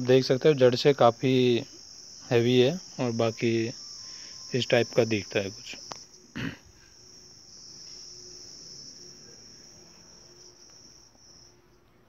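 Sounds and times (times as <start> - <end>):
insects chirring: 0.0 - 11.8.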